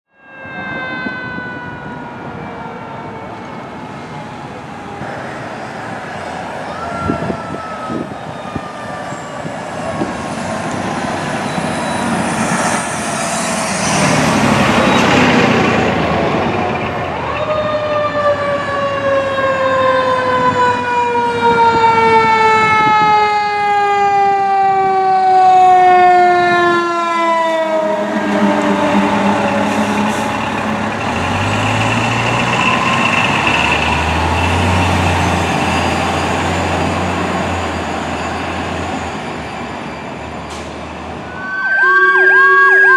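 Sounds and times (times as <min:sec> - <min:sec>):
fire engine siren wailing: 0:00.1 - 0:42.9
truck engine rumble: 0:03.0 - 0:19.5, 0:25.8 - 0:41.8.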